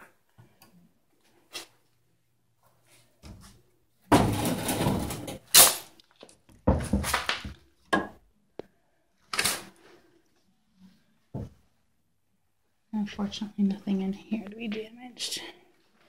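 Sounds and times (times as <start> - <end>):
cabinet scraping: 4.1 - 5.4.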